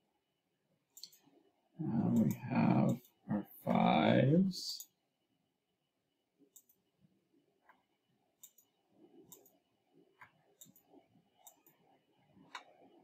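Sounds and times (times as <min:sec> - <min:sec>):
computer mouse clicks: 0:00.9 - 0:01.3, 0:02.0 - 0:03.2, 0:06.5 - 0:06.9, 0:07.6 - 0:13.0.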